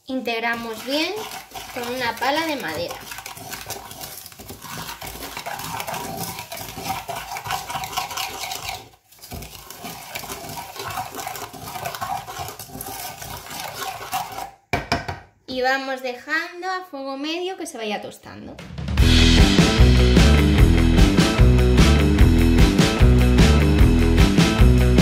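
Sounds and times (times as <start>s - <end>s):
spatula scraping sugar in saucepan: 0.0s - 14.6s.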